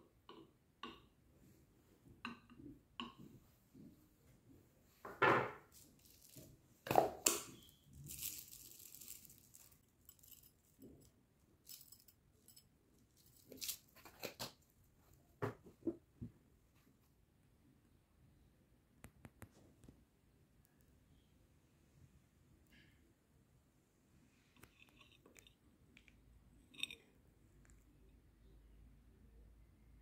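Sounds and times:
tableware knocks and clinks: 5.1s - 5.7s
chocolate shaken from jar: 6.0s - 11.0s.

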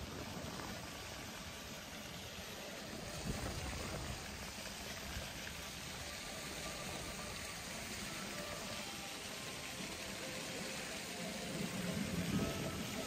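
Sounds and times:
fountain water splashing: 0.0s - 13.0s.

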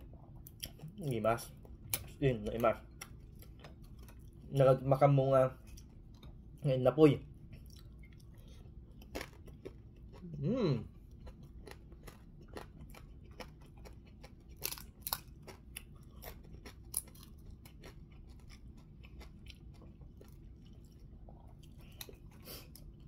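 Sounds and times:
person chewing: 0.0s - 4.6s, 5.6s - 6.6s, 7.3s - 23.0s
fried fish crunching: 7.5s - 10.4s, 11.1s - 23.0s.

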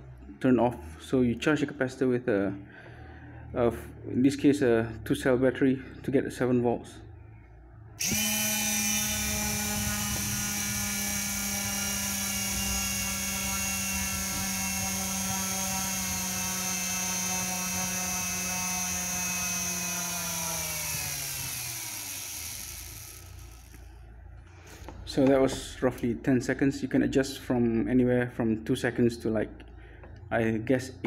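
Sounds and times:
electric propeller motor whining: 8.0s - 24.0s.

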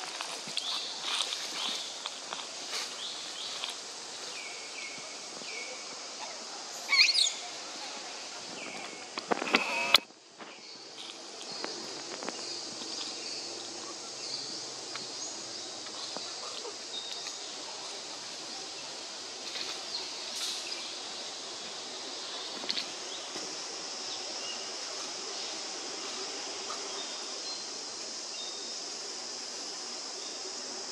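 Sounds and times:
high insect drone: 0.0s - 30.9s
loud click: 9.3s - 10.1s
faint chirps and clicks: 15.8s - 17.5s.

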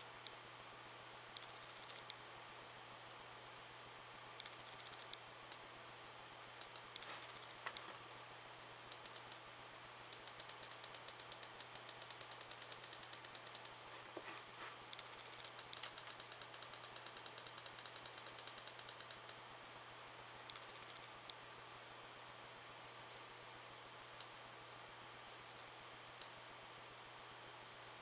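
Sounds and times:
faint low hum: 0.0s - 28.0s
mouse scroll wheel clicking: 1.4s - 2.2s, 4.4s - 5.6s, 6.6s - 7.8s, 8.9s - 9.4s, 10.1s - 13.8s, 14.4s - 19.4s, 20.5s - 21.1s.

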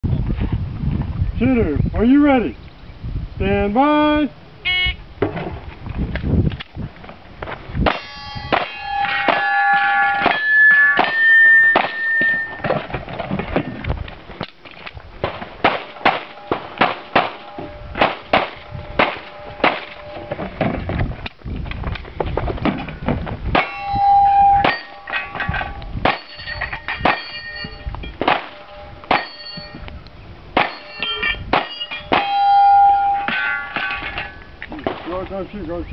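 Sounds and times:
steel targets clanging: 7.8s - 13.9s, 15.2s - 20.9s, 23.5s - 29.9s, 30.6s - 35.5s
pistol shots: 15.2s - 20.0s.

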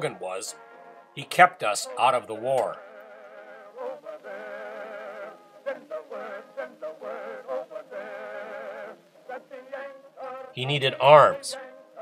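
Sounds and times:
slow melody with vibrato: 0.0s - 1.2s.

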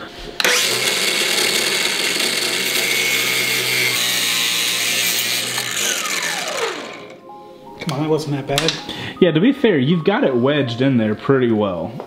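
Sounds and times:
angle grinder cutting: 0.4s - 7.2s.

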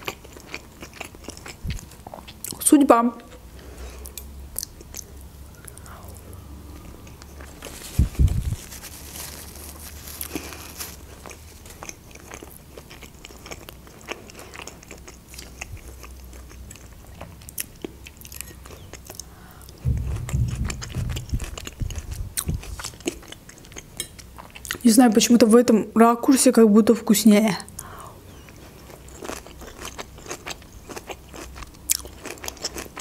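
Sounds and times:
person chewing food: 0.0s - 2.6s, 3.2s - 5.9s, 6.8s - 24.8s, 27.8s - 33.0s
dull thumps: 19.8s - 22.9s.

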